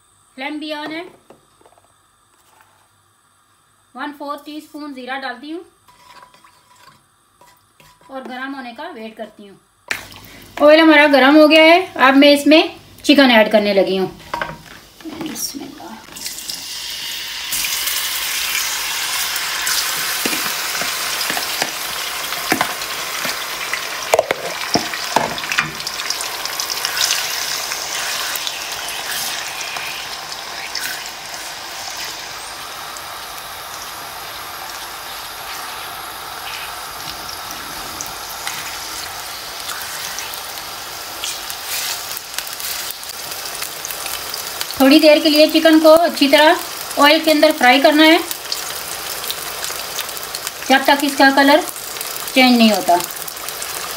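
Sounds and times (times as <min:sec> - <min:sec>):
spatula knocking and scraping pan: 0:05.9 - 0:08.4, 0:24.1 - 0:25.9
chicken sizzling in oil: 0:09.9 - 0:53.9.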